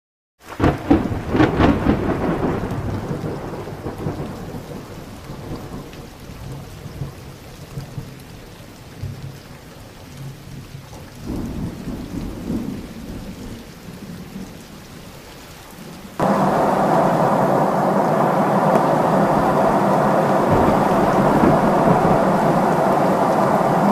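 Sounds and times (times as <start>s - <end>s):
thunder crack and rumble: 0.6s - 8.1s, 11.2s - 14.4s, 16.2s - 23.9s
airplane cabin noise: 16.2s - 23.9s.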